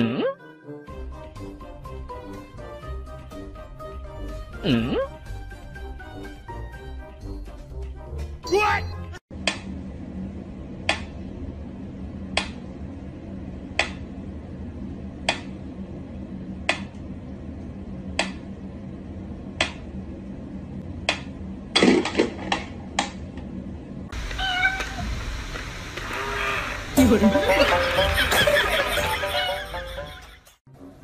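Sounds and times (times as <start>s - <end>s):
wavering meow-like calls: 24.3s - 25.1s, 26.0s - 26.9s.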